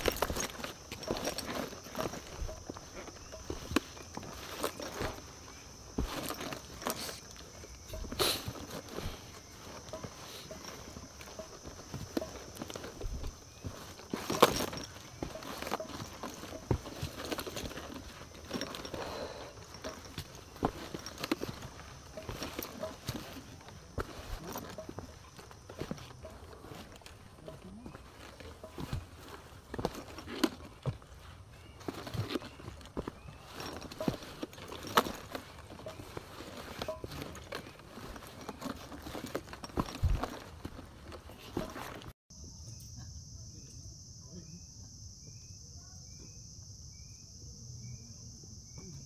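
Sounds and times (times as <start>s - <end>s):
footsteps on rocky trail: 0.0s - 42.2s.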